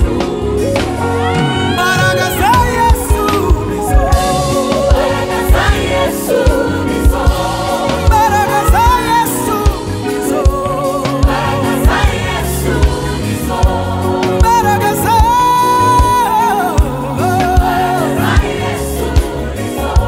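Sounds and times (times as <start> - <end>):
band with drums and keyboard: 0.0 - 20.0
singer and choir singing: 0.0 - 20.0.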